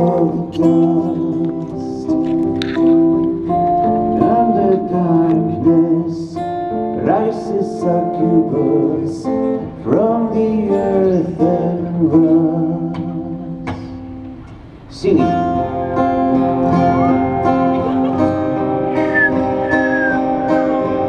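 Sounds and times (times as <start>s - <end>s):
man singing: 0.0s - 3.2s, 4.2s - 6.4s, 7.0s - 13.6s, 14.9s - 17.2s
acoustic guitars playing chords: 0.0s - 21.0s.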